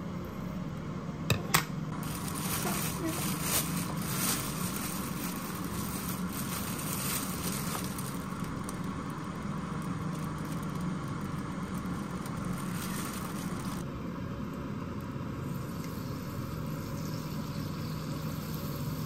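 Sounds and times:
low mechanical hum: 0:00.0 - 0:19.0
plastic bag rustling: 0:01.9 - 0:13.9.

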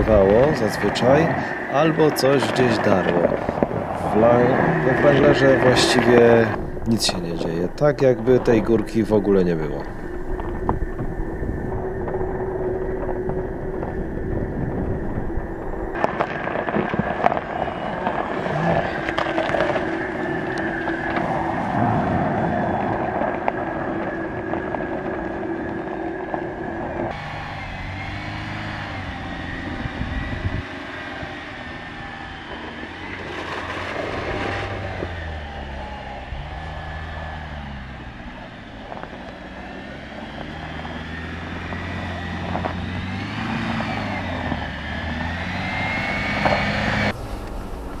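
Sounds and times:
steady vehicle whine: 0:00.0 - 0:48.0
motor rising and falling: 0:27.0 - 0:48.0.

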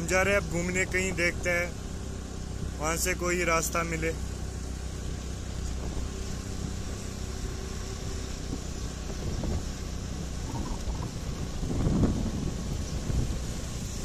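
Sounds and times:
road noise: 0:00.0 - 0:14.0
motor scooter running: 0:04.2 - 0:14.0.

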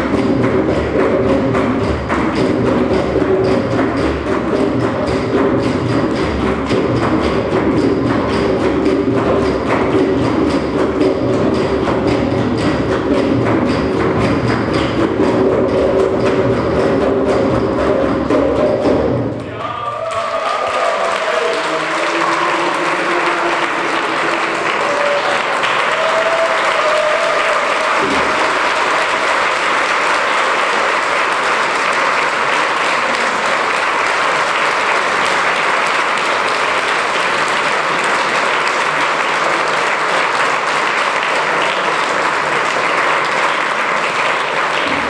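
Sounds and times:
audience applauding: 0:19.4 - 0:45.0.

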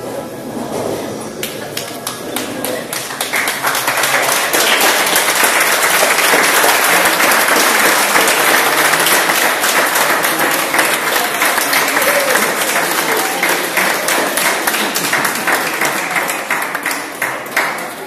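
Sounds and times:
audience applauding: 0:01.4 - 0:18.0.

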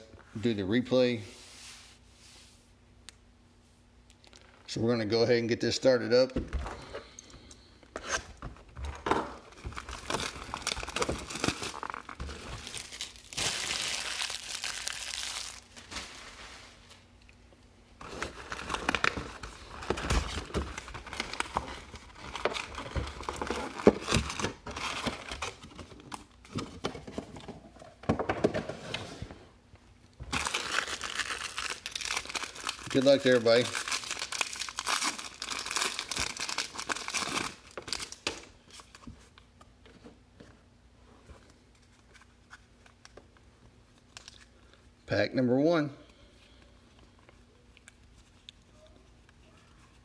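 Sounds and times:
foil card packs rustling: 0:07.7 - 0:17.1, 0:18.0 - 0:26.8, 0:30.3 - 0:39.0
plastic wrapping and cardboard tearing: 0:09.0 - 0:16.1, 0:18.0 - 0:25.8, 0:30.3 - 0:38.5.

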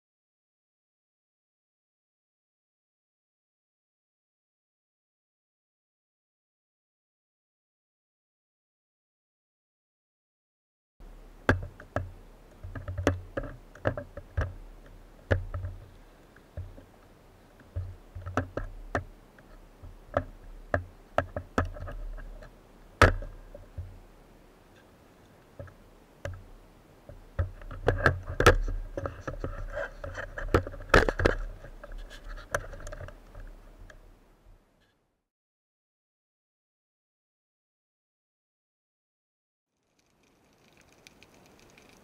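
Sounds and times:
diving gear bumping together: 0:19.8 - 0:24.0.

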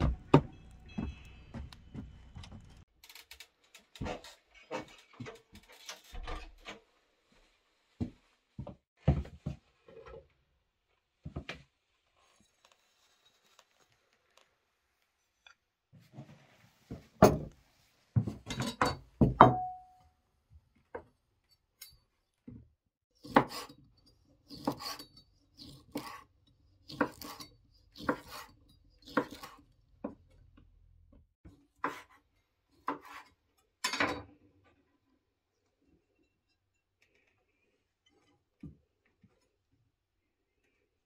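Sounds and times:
tableware clinking: 0:18.5 - 0:20.0.

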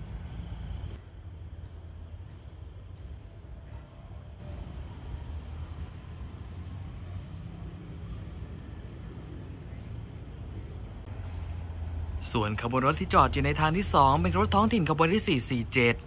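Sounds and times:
insects trilling: 0:00.0 - 0:16.0
low steady rumble: 0:04.4 - 0:16.0.

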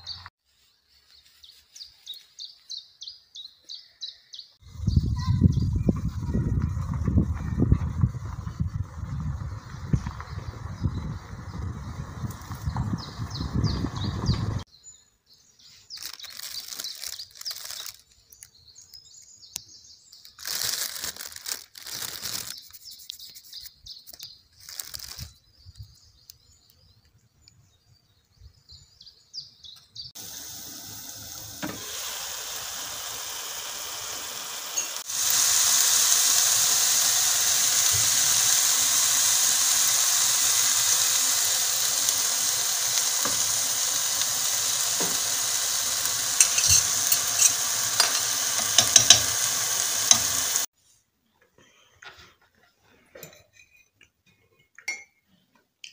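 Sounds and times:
rustling and handling noises: 0:15.7 - 0:18.6, 0:20.2 - 0:25.4
food sizzling in a pan: 0:30.2 - 0:50.7.

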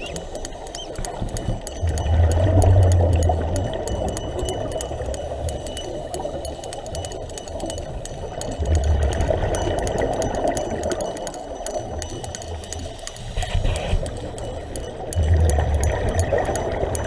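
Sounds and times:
faint fine clicks: 0:00.0 - 0:17.0
exhaled bubbles rumbling: 0:01.7 - 0:06.4, 0:08.3 - 0:12.1, 0:14.9 - 0:17.0.

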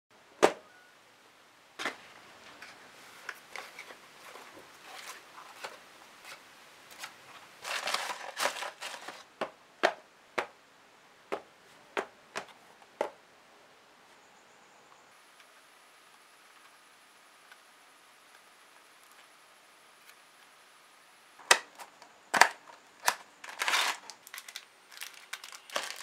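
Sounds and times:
packing paper rustling: 0:03.2 - 0:09.3, 0:21.4 - 0:26.0
cardboard carton being opened: 0:07.6 - 0:09.2, 0:21.8 - 0:26.0.

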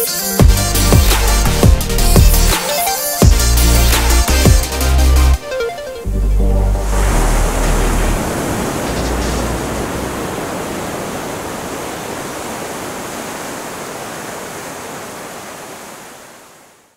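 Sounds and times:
ocean waves washing on beach: 0:06.8 - 0:16.9.

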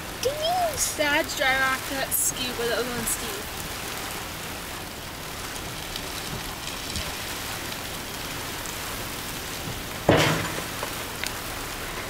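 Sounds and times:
metal ramp slamming with bang: 0:10.0 - 0:10.8.

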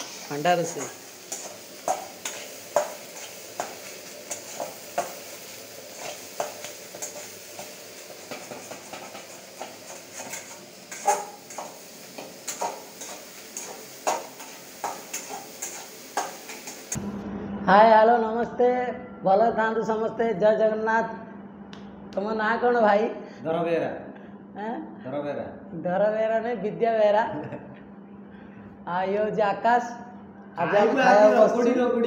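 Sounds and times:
eggs sizzling: 0:00.0 - 0:17.0.

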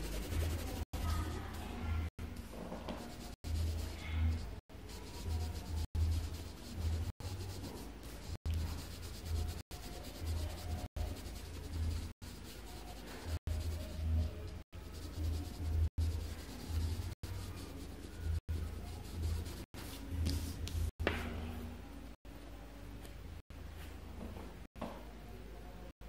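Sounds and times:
pencil shading on paper: 0:00.0 - 0:01.6, 0:02.9 - 0:20.9.

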